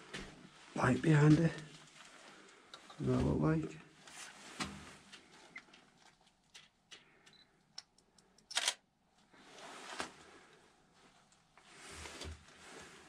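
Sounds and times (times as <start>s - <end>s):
camera handling clicks: 7.8s - 8.8s
sharp camera click: 8.5s - 8.8s.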